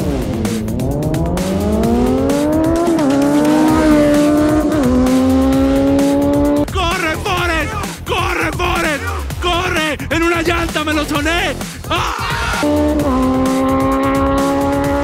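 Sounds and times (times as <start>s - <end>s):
motorcycles accelerating hard: 0.0s - 6.7s, 12.5s - 15.0s.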